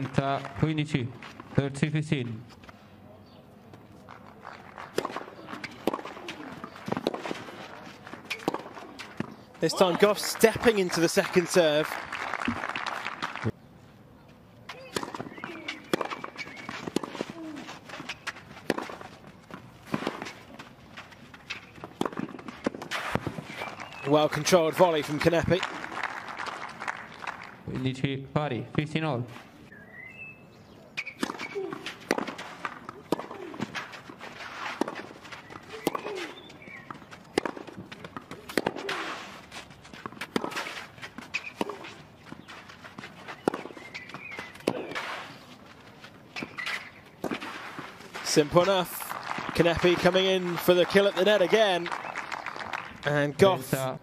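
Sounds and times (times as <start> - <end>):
rackets striking tennis ball: 3.7 - 11.8, 14.6 - 25.8, 30.9 - 52.8
footsteps on clay: 14.2 - 25.0, 31.4 - 52.0.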